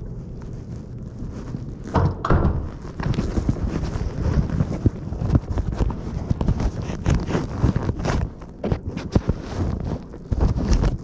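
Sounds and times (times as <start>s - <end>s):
knocks and rattles: 1.9s - 4.9s.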